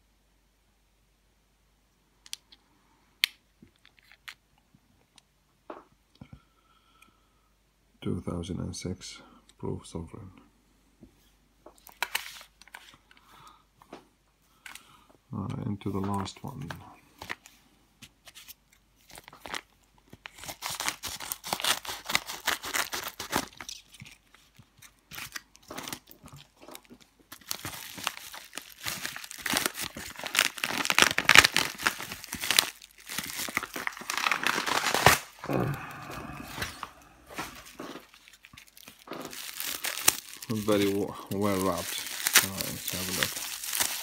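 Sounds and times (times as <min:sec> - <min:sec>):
paper and tape tearing: 0:20.4 - 0:24.2, 0:27.5 - 0:35.4.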